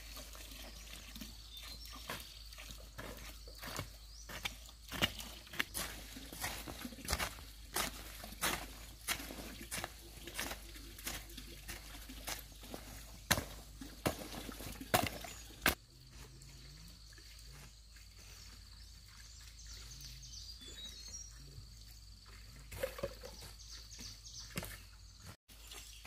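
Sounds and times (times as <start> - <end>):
birds chirping: 0.0 - 15.8, 16.6 - 26.0
hoe chopping soil: 3.0 - 15.8.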